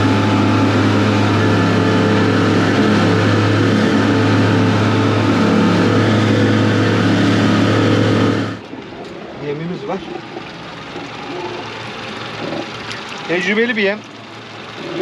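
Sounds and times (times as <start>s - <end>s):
motorboat engine droning: 0.0s - 15.0s.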